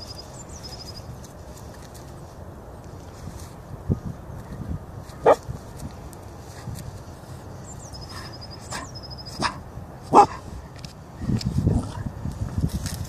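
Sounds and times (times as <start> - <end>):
dog yelping: 8.7 - 10.4.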